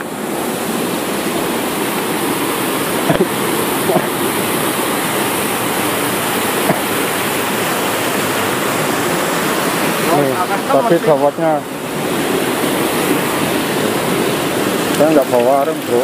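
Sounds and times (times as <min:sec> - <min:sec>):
river rapids rushing over rocks: 0:00.0 - 0:16.0.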